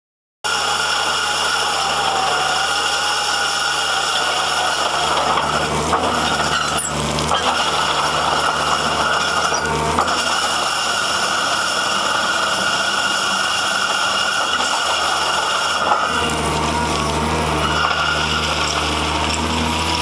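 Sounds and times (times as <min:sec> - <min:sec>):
excavator engine running: 0:00.5 - 0:20.0
soil pouring through a screen: 0:00.5 - 0:20.0.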